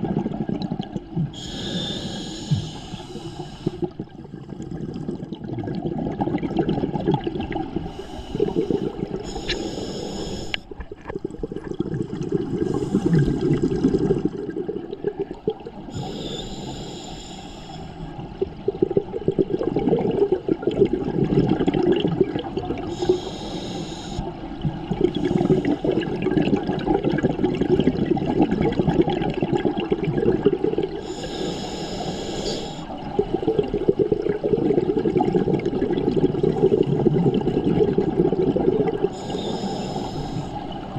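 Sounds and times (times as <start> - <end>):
exhaled air bubbling: 0.0 - 40.9
regulator hissing inhalations: 1.4 - 4.0, 7.9 - 10.7, 15.9 - 18.0, 22.9 - 24.3, 31.0 - 32.9, 39.1 - 40.6.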